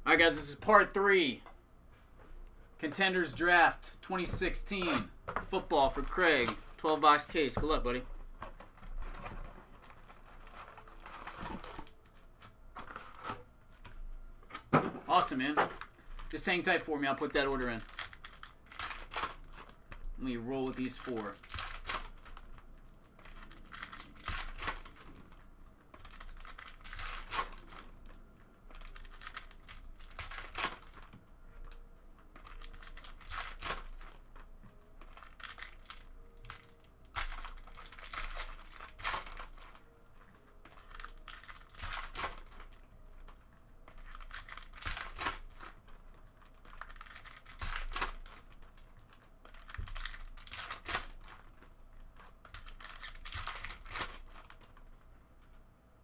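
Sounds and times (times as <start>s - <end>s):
cards shuffling: 3.0s - 22.6s, 23.2s - 28.0s, 28.7s - 54.9s
foil wrappers tearing and crinkling: 8.8s - 13.4s, 15.1s - 54.9s.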